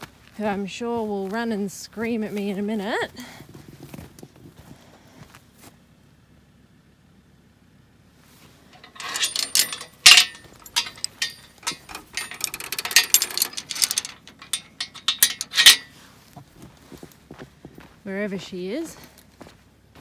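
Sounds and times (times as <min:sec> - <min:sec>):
chain rattling and clinking: 0:08.7 - 0:15.9
metal gate clanking: 0:08.8 - 0:15.9.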